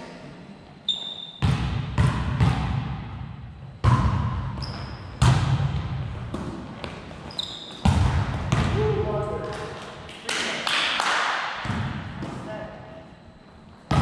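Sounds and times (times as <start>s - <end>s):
volleyball hits echoing: 1.3s - 12.6s
sneakers squeaking on hardwood: 4.6s - 5.3s, 6.7s - 8.6s.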